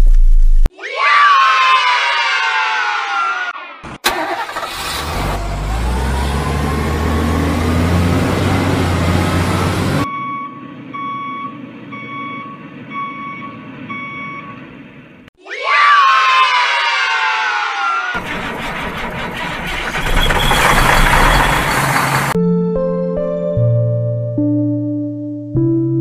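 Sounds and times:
truck engine starting click: 0:04.0 - 0:05.5, 0:18.2 - 0:22.4
truck engine running heavily: 0:04.1 - 0:14.0, 0:18.2 - 0:22.4
truck reversing alarm beeping: 0:05.6 - 0:15.3, 0:18.3 - 0:22.4.

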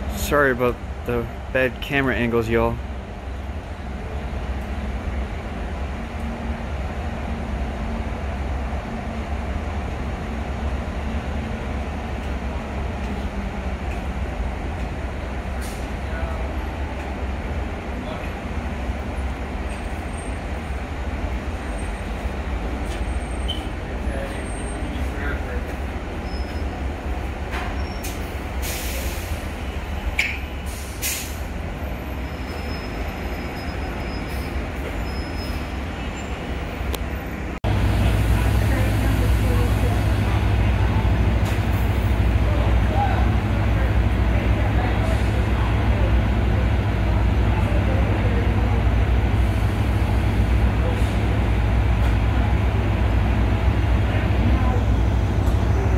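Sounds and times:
train rumbling: 0:00.0 - 0:55.9
train brake hiss: 0:27.9 - 0:29.8, 0:30.6 - 0:31.5.

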